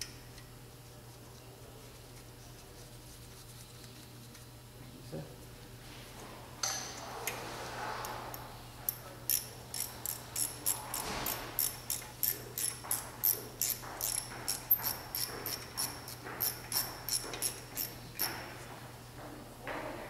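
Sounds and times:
hand ratchet clicking: 8.9s - 18.4s.

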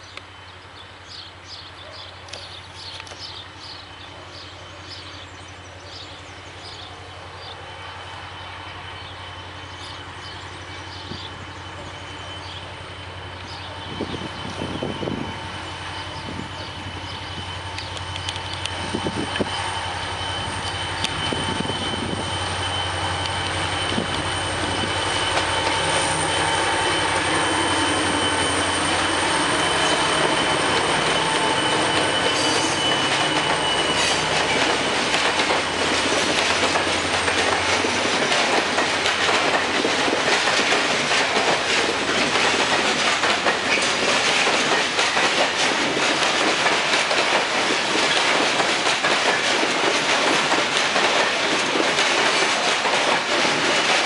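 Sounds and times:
diesel locomotive engine drone: 0.0s - 54.0s
wheel squeal: 9.0s - 34.8s.

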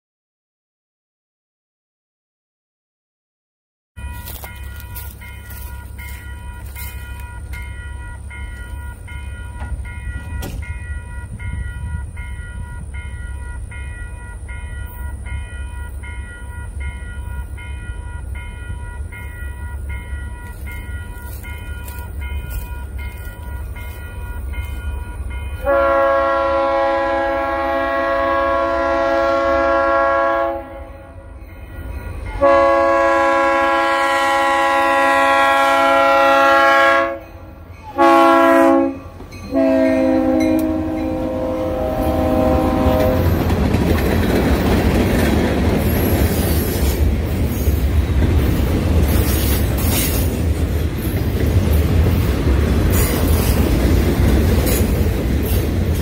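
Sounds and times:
train low rumble: 4.0s - 56.0s
locomotive air horn blasts: 25.5s - 31.4s, 32.2s - 43.5s.

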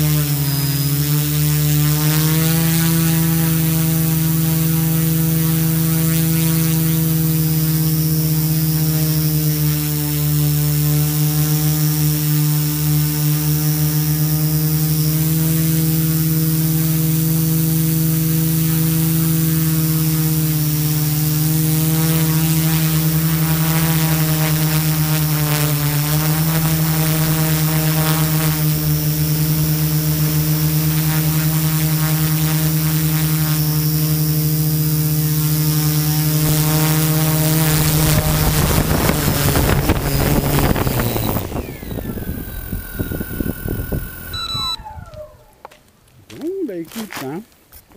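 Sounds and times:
drone motors humming: 0.0s - 46.4s.

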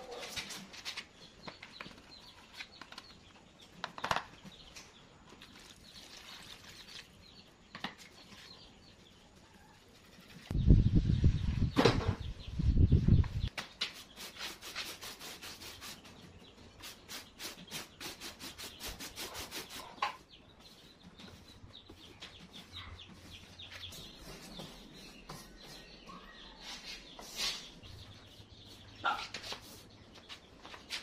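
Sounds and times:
paintbrush stroking wet cement: 14.0s - 30.4s.

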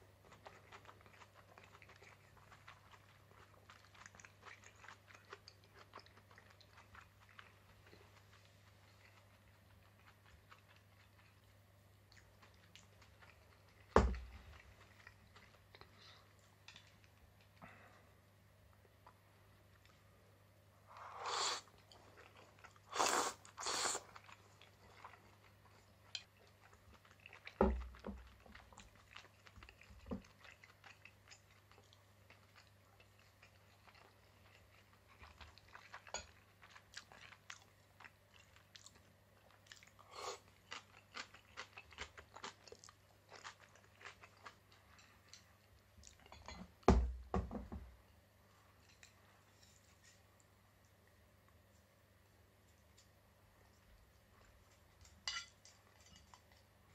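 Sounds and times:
person chewing and crunching: 0.0s - 17.6s, 21.0s - 46.6s.

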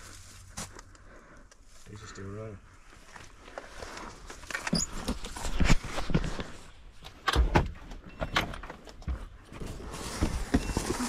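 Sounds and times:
rustling: 9.4s - 11.0s.

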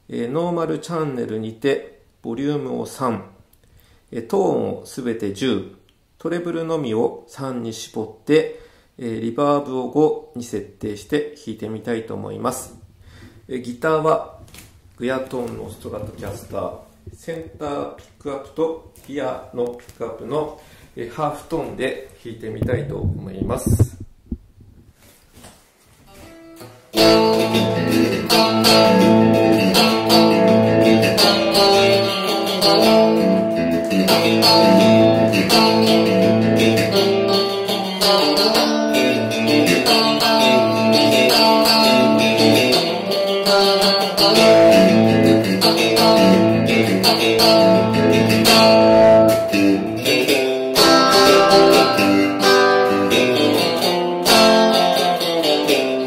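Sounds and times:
electric guitar strumming and picking: 26.1s - 56.0s.

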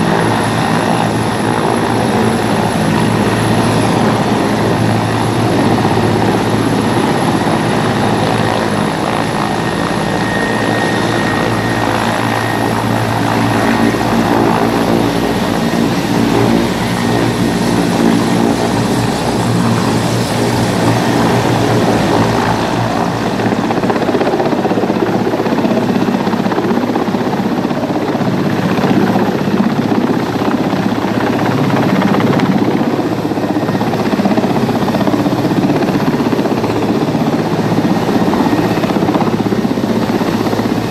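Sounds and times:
helicopter hovering: 0.0s - 40.9s.

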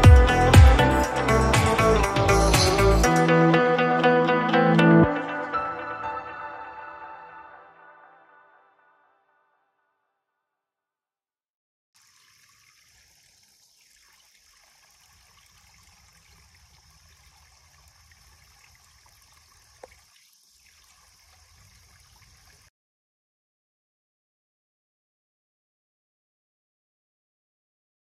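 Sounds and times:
small stream trickling: 12.0s - 22.7s.

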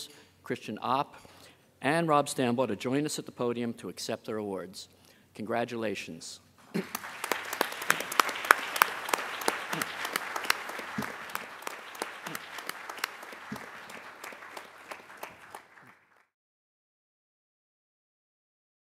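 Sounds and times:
audience clapping: 6.7s - 16.3s.

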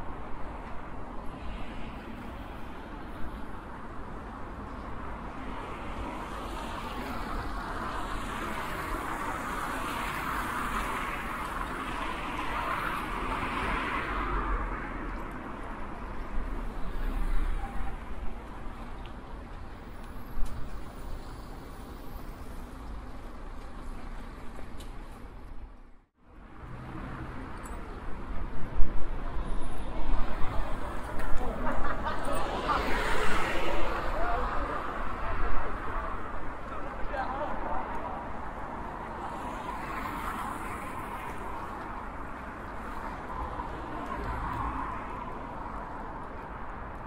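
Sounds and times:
car passing: 29.6s - 46.1s.

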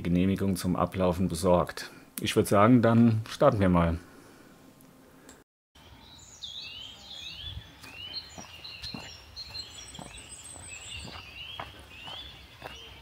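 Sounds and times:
small birds chirping: 5.8s - 13.0s.

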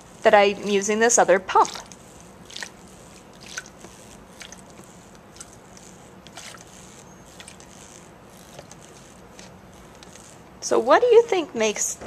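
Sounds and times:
water squishing and splashing: 3.4s - 3.8s.

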